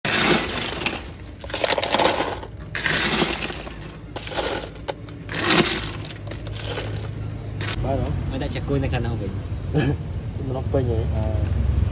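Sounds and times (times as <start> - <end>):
ice cubes clattering into cup: 0.0 - 7.8
plastic scoop crunching ice: 0.0 - 7.8.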